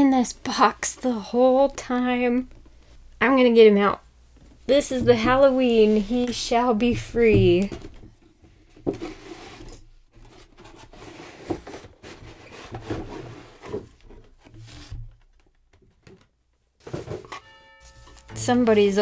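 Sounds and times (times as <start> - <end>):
cardboard rustling and scraping: 4.8 - 15.4, 16.8 - 17.5.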